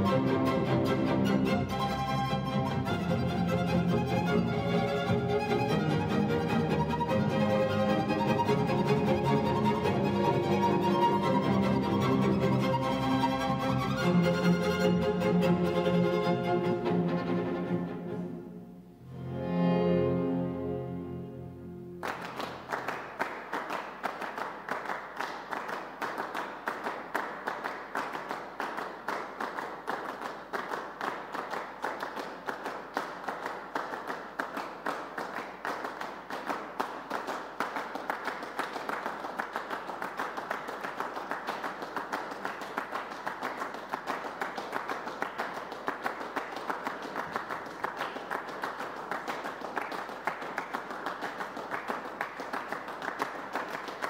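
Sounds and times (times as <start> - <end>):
applause: 22.0 - 54.0.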